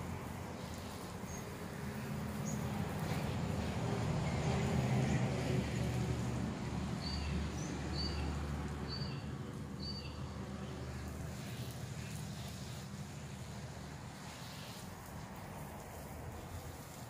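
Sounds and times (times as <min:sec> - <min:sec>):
garden hose spraying water: 0:00.0 - 0:17.0
bird chirping: 0:08.9 - 0:10.2.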